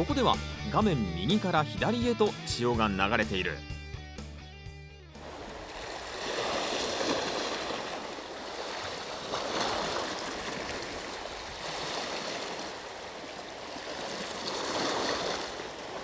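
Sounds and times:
sea water lapping on rocks: 5.2 - 16.0.

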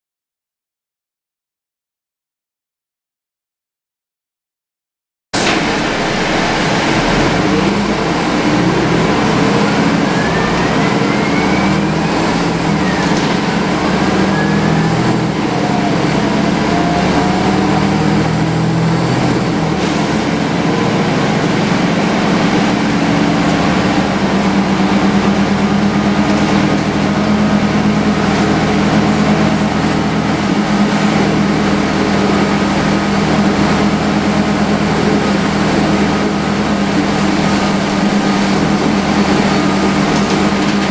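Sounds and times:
gearbox whine: 5.4 - 18.2
bus diesel engine: 5.4 - 40.9.

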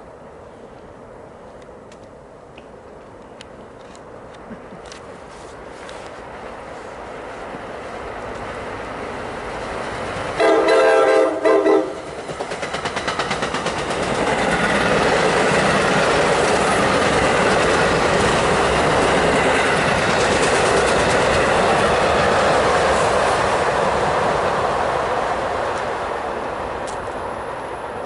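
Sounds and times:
train wheels clicking and rumbling: 7.4 - 27.4
train horn: 10.4 - 12.0.

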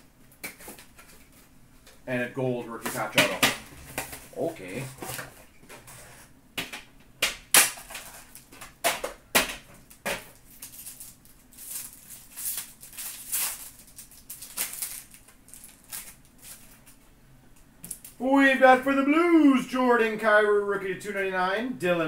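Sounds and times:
foil wrapper crinkling and tearing: 9.9 - 17.0.

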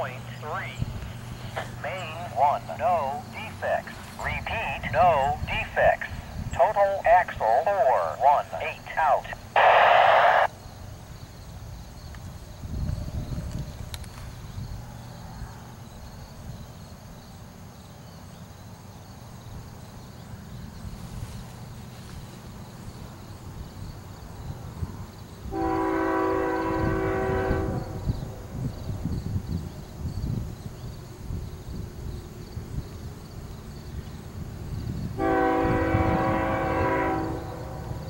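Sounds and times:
diesel locomotive rumbling: 0.0 - 10.5, 20.3 - 38.0
train air horn blast: 25.5 - 28.1, 35.2 - 38.0.

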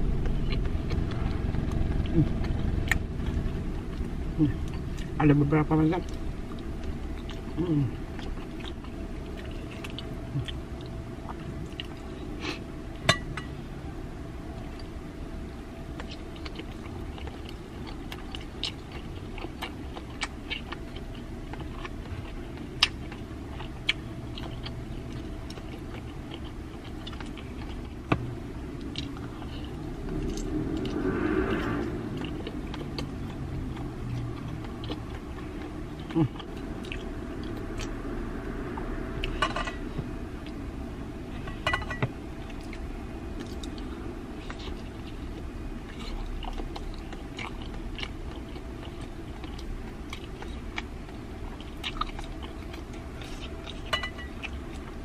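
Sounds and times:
person chewing food: 0.0 - 13.6, 14.5 - 55.0
short voice hum: 7.6 - 8.0.

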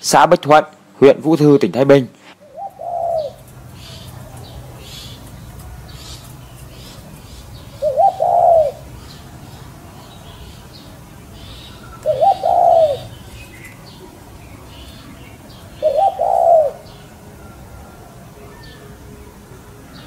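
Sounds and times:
birds chirping: 0.0 - 20.0
dove cooing: 2.4 - 9.3, 11.4 - 18.9.

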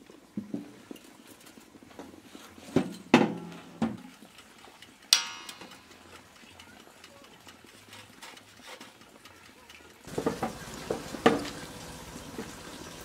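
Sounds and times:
metallic rattle of oven door: 5.2 - 5.9.

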